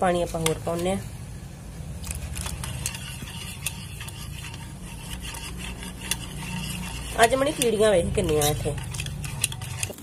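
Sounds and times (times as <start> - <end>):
whisk wires clicking on bowl: 0.2 - 1.0, 2.0 - 10.0
whisk swishing batter: 2.1 - 10.0.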